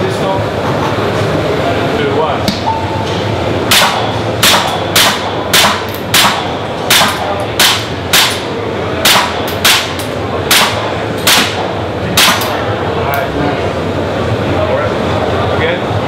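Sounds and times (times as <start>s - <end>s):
airsoft pistol shots: 3.7s - 12.6s.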